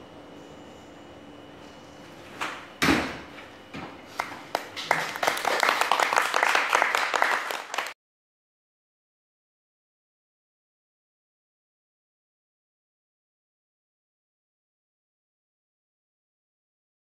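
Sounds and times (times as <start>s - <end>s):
small group applauding: 4.2s - 8.0s.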